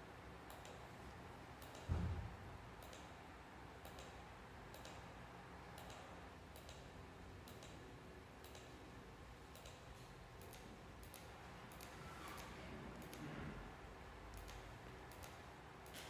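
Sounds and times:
light clicking of controller: 0:00.5 - 0:00.9, 0:01.6 - 0:01.9, 0:02.8 - 0:03.2, 0:03.8 - 0:05.2, 0:05.8 - 0:07.8, 0:08.4 - 0:08.8, 0:09.5 - 0:13.3, 0:14.3 - 0:16.0.

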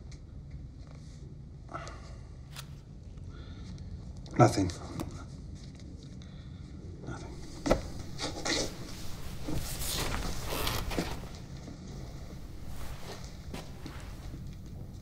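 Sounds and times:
low room hum: 0:00.0 - 0:15.0
book pages rustling: 0:07.3 - 0:15.0.

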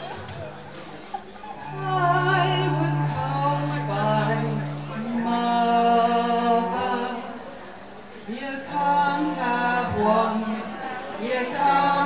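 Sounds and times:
cello: 0:01.5 - 0:07.5.

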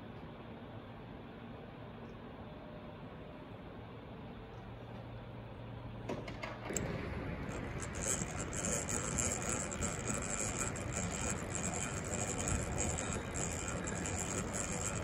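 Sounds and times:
power drill running: 0:06.7 - 0:15.0.

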